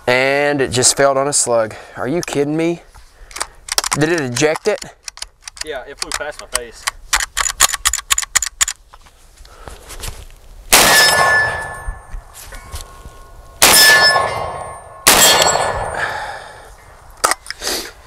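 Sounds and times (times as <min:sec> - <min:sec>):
shotgun shots: 0:10.7 - 0:11.8, 0:13.6 - 0:16.3
ringing metallic clang: 0:10.8 - 0:16.2.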